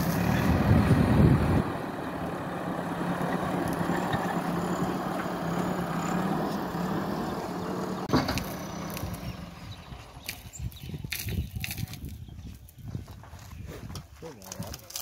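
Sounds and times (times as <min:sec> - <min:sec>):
diesel engine running: 0:00.0 - 0:10.9.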